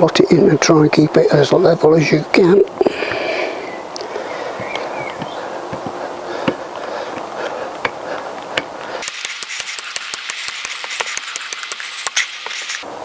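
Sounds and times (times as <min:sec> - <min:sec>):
sharp metallic clicks: 0:08.6 - 0:12.8.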